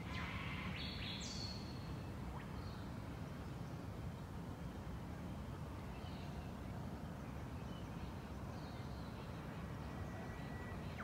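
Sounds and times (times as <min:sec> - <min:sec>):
faint bird chirps: 0:07.3 - 0:11.0.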